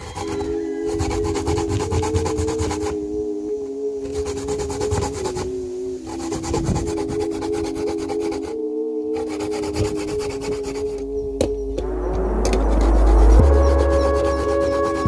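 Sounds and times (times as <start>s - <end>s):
coconut grating on metal grater: 0.0s - 2.8s.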